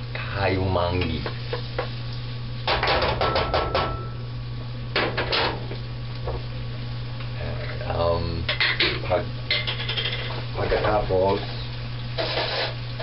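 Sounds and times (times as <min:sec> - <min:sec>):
steady low hum: 0:00.0 - 0:13.0
utensil clacking against a pan: 0:08.5 - 0:11.0.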